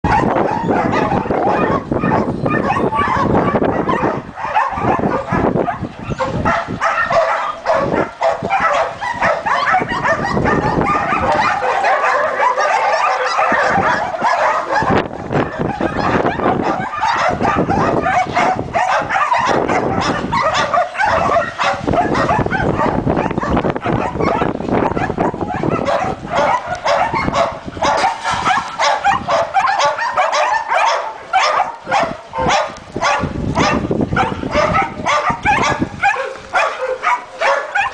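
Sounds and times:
many dogs barking: 0:00.0 - 0:37.9.

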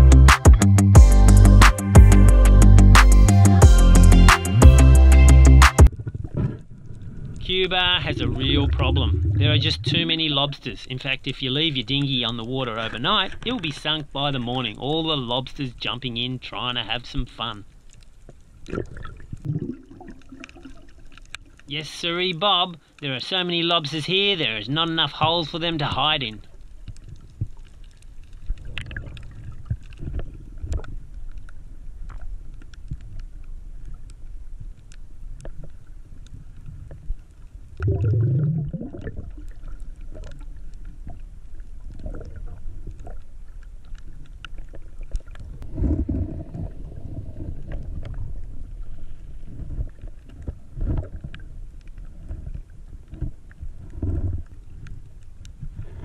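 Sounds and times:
muffled underwater rumble: 0:05.8 - 0:14.8, 0:25.8 - 0:56.0
low rush of water: 0:05.9 - 0:18.0
sharp underwater clicks: 0:20.1 - 0:21.7, 0:38.8 - 0:45.7.

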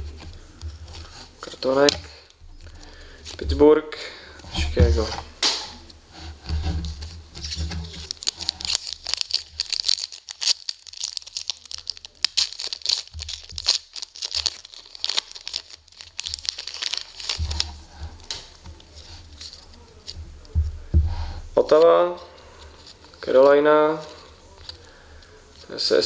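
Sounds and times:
foil wrapper crinkling and tearing: 0:07.4 - 0:20.2, 0:22.5 - 0:24.9.

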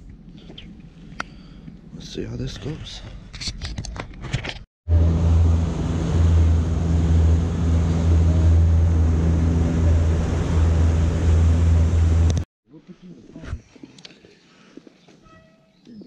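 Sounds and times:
outboard motor drone: 0:04.9 - 0:12.4
wind and water rushing: 0:04.9 - 0:12.4.

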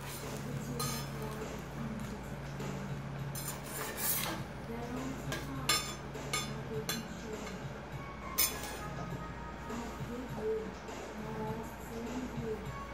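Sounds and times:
metal utensils scraping a griddle: 0:00.0 - 0:01.3, 0:03.3 - 0:04.5, 0:08.4 - 0:08.9
low steady hum: 0:00.0 - 0:12.9.

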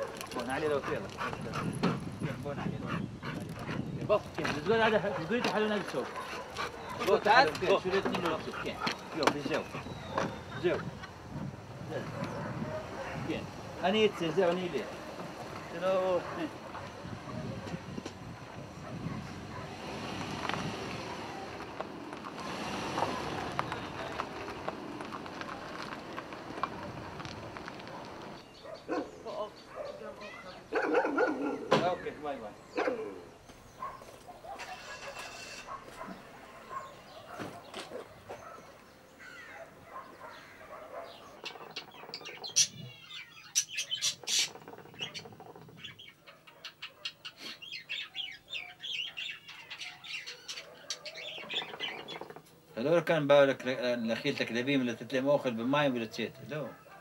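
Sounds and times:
small birds chirping: 0:00.0 - 0:57.0
car driving slowly past: 0:04.5 - 0:28.5.

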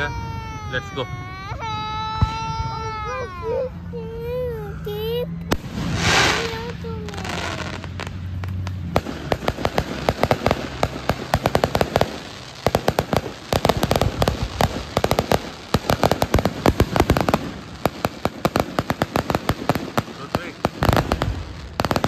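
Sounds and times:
fireworks crackling: 0:04.3 - 0:22.0.

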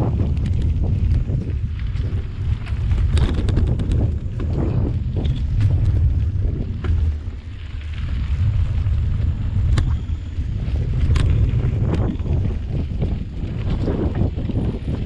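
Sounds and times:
bike clicks: 0:00.0 - 0:15.0
wind buffeting microphone: 0:00.0 - 0:15.0.

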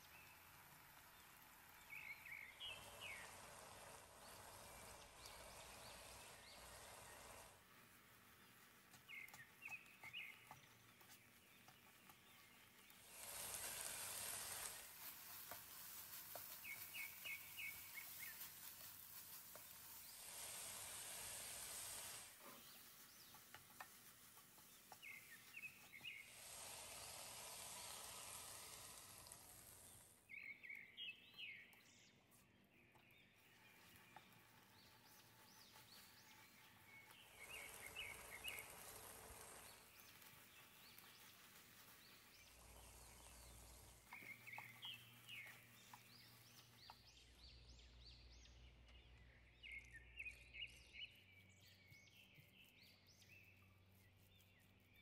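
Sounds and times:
faint sizzling in frying pan: 0:13.0 - 0:25.4, 0:26.3 - 0:30.2.

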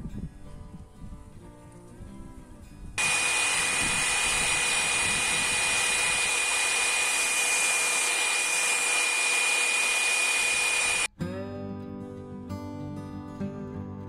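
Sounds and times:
belt sander grinding steel: 0:03.0 - 0:11.1.

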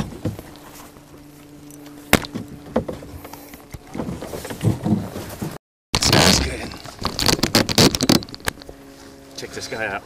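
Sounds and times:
knocks and clicks of tackle handling: 0:01.6 - 0:05.6, 0:06.6 - 0:08.8.

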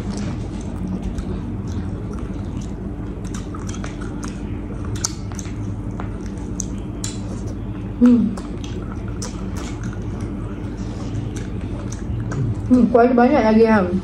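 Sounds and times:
wet mouth clicks: 0:00.0 - 0:05.6, 0:06.2 - 0:07.6, 0:08.3 - 0:10.0
people chewing sticky food: 0:00.0 - 0:13.0
low hum: 0:00.0 - 0:14.0.

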